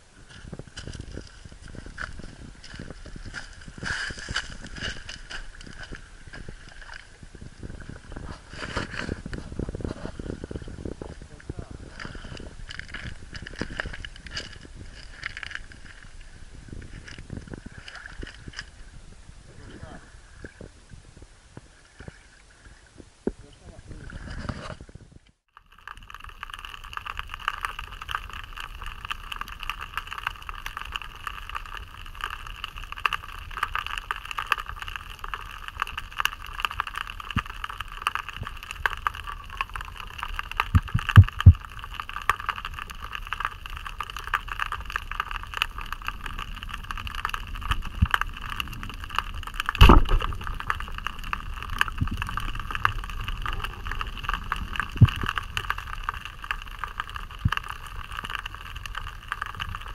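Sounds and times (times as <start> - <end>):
faint crackling clicks: 8.0 - 18.8, 24.2 - 59.9.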